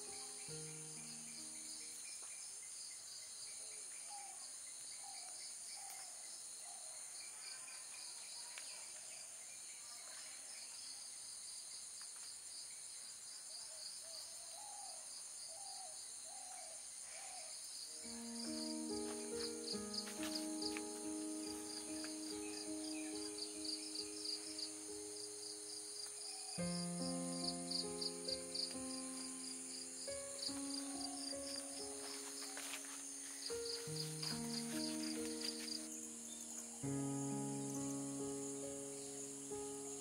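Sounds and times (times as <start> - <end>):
insects chirring: 0.0 - 6.4, 17.7 - 40.0.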